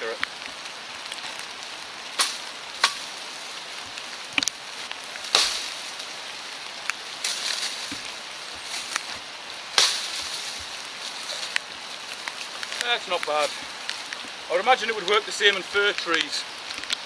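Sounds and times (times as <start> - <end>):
leaves rustling: 0.0 - 17.0
rain hissing: 0.0 - 17.0
shovel chopping branches: 2.2 - 3.2, 5.2 - 6.0, 7.2 - 11.7.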